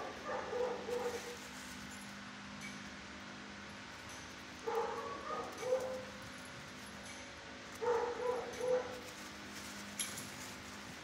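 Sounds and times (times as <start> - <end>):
dog barking: 0.0 - 1.4, 4.6 - 6.1, 7.8 - 9.0.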